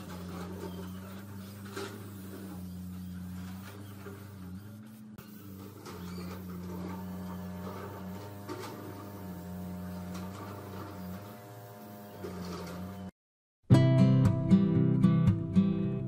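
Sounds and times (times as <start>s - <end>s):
spray gun hissing: 0.0s - 13.0s
spray equipment motor hum: 0.0s - 13.1s
strummed acoustic guitar music: 13.7s - 16.0s.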